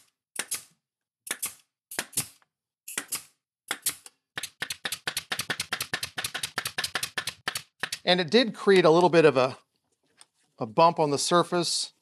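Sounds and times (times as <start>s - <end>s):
brad nailer firing: 3.0s - 8.0s.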